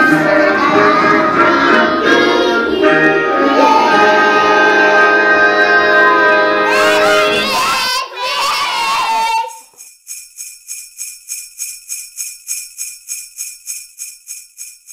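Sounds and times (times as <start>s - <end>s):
jingle bells shaken rhythmically: 0.0s - 5.9s, 6.7s - 14.9s
children shouting: 0.0s - 9.7s.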